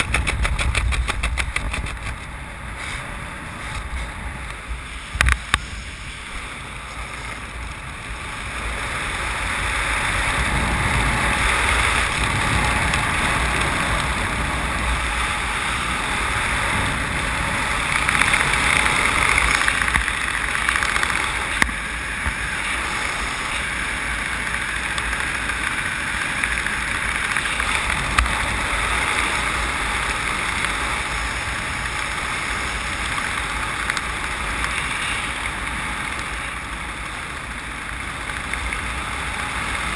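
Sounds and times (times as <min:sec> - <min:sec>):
wind rushing over microphone: 0:00.0 - 0:39.9.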